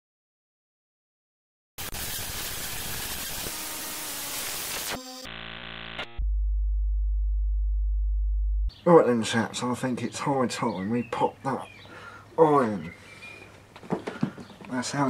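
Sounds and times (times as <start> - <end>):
deep hum: 5.3 - 8.7.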